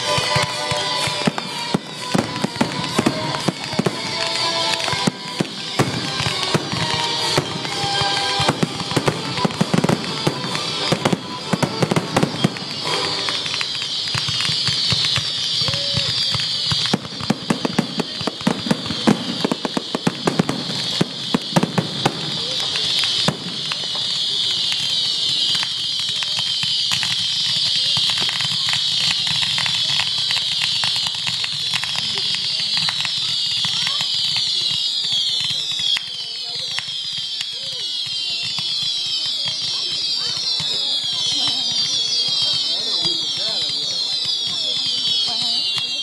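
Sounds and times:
fireworks crackling and banging: 0.0 - 46.0.

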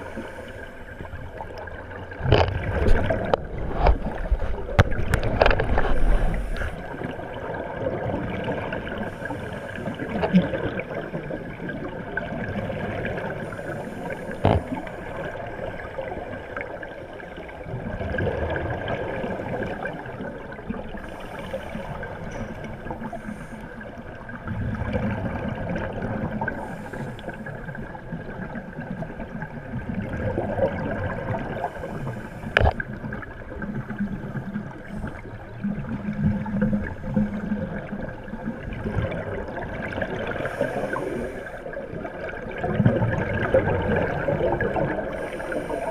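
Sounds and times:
muffled underwater noise: 18.8 - 45.9.

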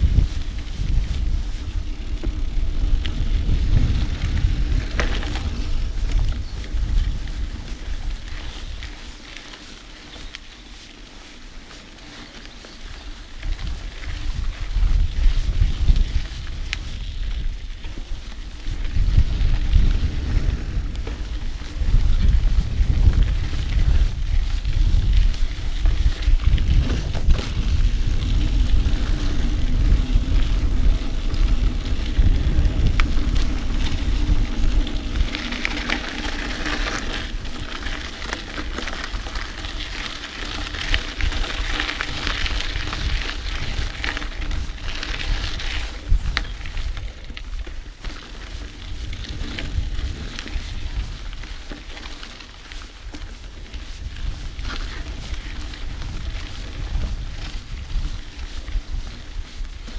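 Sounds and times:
bike rattling over bumps: 0.0 - 59.9
tyres crackling on dirt: 0.0 - 59.9
wind rumble on microphone: 0.0 - 59.9.

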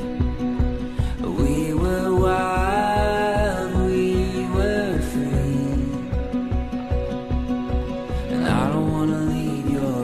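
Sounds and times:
slow song with held chords: 0.0 - 10.0
steady low beat: 0.0 - 10.0.

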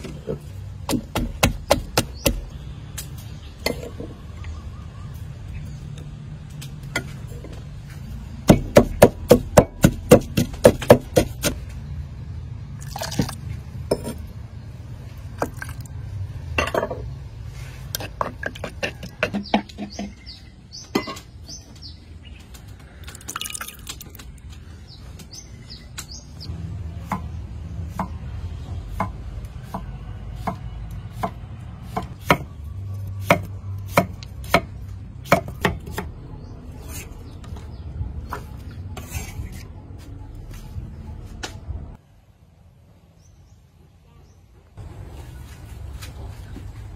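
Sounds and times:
birds chirping: 0.3 - 9.3, 18.0 - 33.3, 35.1 - 42.0
pestle pounding in wooden mortar: 0.8 - 2.5, 8.4 - 11.6
cleaver chopping on wooden board: 0.9 - 2.4, 8.5 - 11.6.

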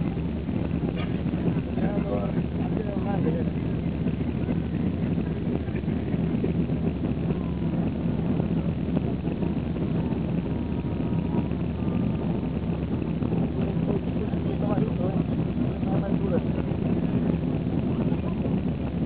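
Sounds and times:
jet airliner cabin engine noise: 0.0 - 19.0.

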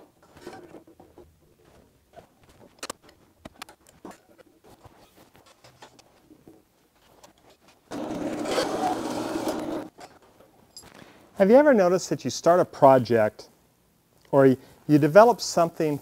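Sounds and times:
loud rough scraping: 7.9 - 9.9.

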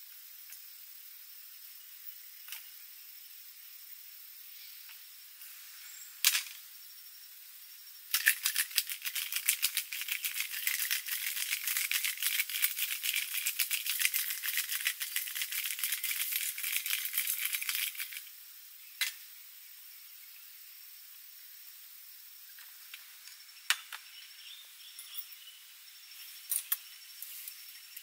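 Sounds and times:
cocktail shaker rattling: 8.1 - 18.3.

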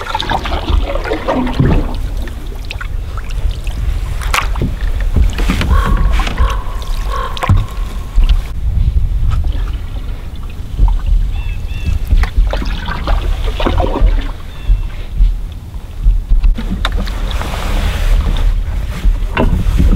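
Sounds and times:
water movement: 0.0 - 19.9
wind rumble on microphone: 0.0 - 19.9
wooden paddle knocking on hull: 4.3 - 8.6, 9.2 - 17.1, 18.8 - 19.9.

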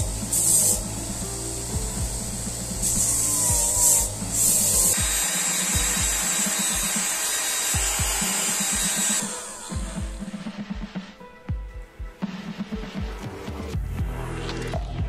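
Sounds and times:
sanding drum grinding: 0.0 - 11.1
steady even hiss: 0.0 - 13.2.

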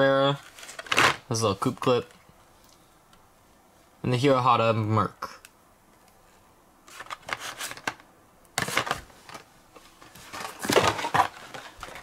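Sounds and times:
plastic packs rustling and scraping: 0.3 - 2.1, 6.9 - 8.0, 8.6 - 12.0.

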